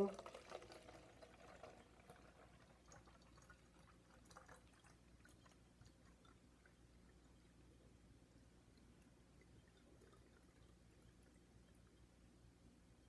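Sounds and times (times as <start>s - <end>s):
water trickling into bottle: 0.0s - 7.8s, 8.4s - 12.1s
small drips and ticks: 0.0s - 13.0s.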